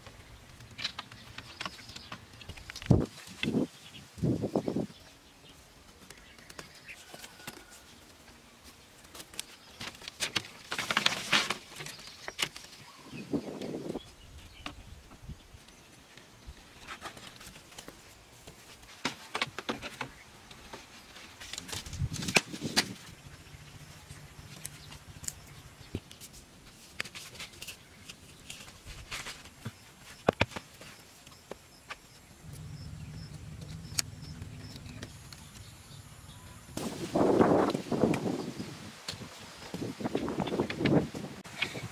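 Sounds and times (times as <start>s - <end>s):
vine canes rustling and clicking: 0.0s - 3.8s, 8.6s - 12.9s, 16.1s - 23.2s, 24.4s - 32.8s
faint low hum: 23.0s - 26.6s, 31.4s - 36.8s.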